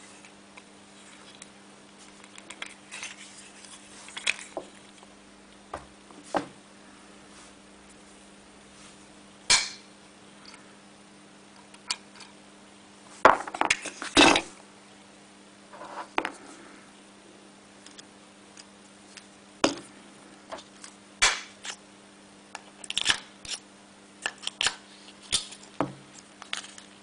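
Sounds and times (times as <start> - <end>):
magnets snapping together: 22.8 - 23.6.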